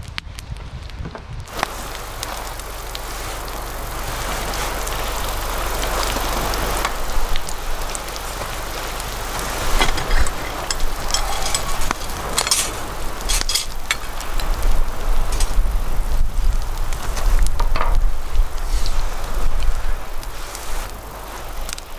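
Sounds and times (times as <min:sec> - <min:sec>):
campfire popping: 0:00.1 - 0:21.9
batter sizzling in a skillet: 0:01.5 - 0:21.9
spatula scraping: 0:09.6 - 0:14.0.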